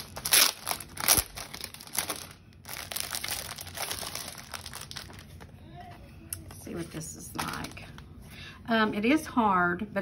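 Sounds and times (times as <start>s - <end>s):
plastic packaging crinkling: 0.0s - 5.6s, 6.7s - 8.0s.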